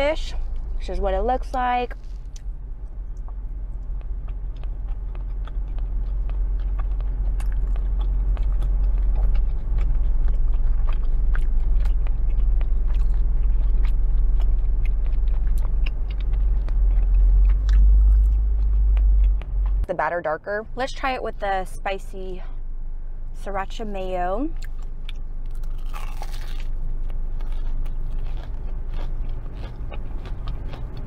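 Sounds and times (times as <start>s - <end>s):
deep rumble: 0.0s - 31.0s
chewing and wet mouth clicks: 3.1s - 19.9s, 24.6s - 31.0s.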